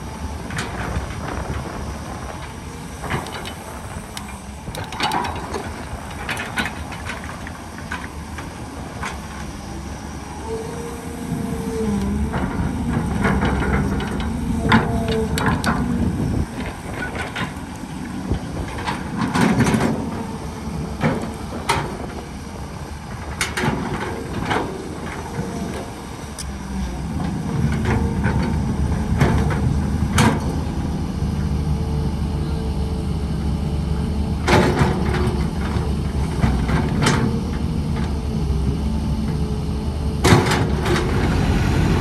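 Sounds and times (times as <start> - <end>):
diesel engine rumbling: 0.0 - 42.0.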